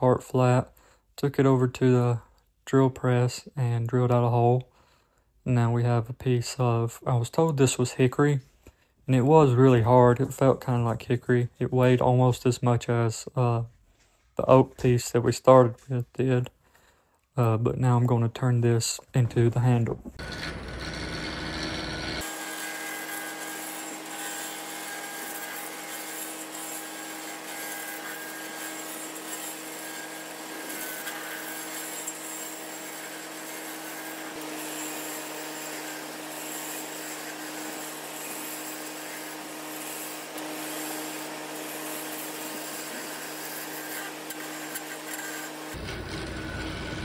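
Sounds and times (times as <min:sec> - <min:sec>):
lathe motor humming: 0:20.2 - 0:27.2
tool cutting wood on lathe: 0:20.2 - 0:47.0.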